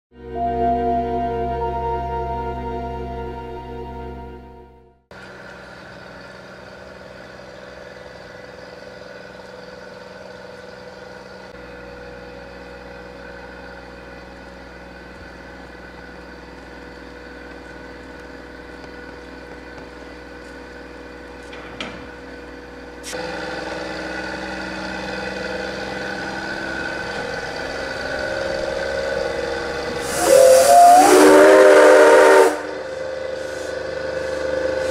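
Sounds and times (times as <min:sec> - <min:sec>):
steam locomotive whistle: 0:29.7 - 0:34.9
hiss: 0:30.0 - 0:31.3, 0:32.5 - 0:34.9.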